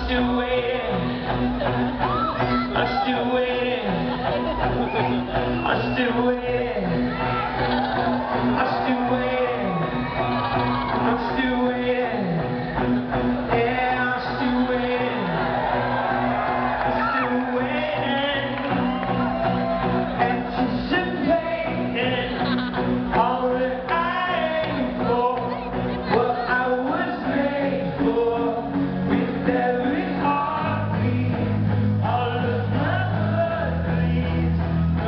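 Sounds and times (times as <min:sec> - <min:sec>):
man singing: 0:00.0 - 0:16.2, 0:16.8 - 0:35.0
live rock band: 0:00.0 - 0:35.0.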